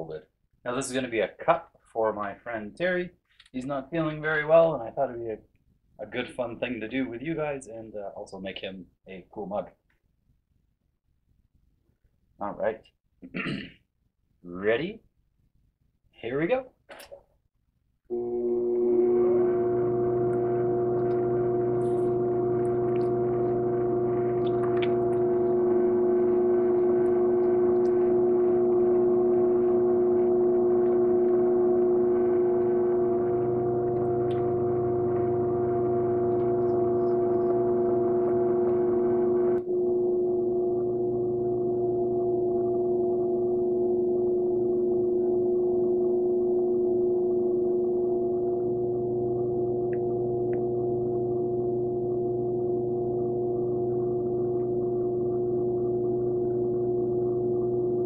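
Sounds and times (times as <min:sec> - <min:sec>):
pottery wheel motor hum: 0:18.1 - 0:58.0.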